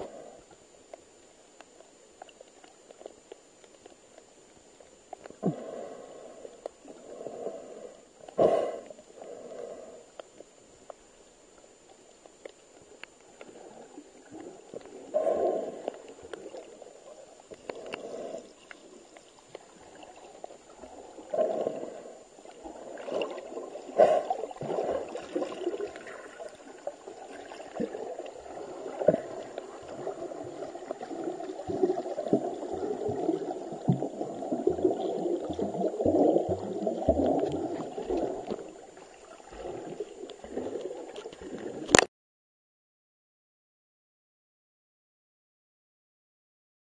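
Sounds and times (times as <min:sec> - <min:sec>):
muffled underwater gurgling: 0:12.7 - 0:42.1.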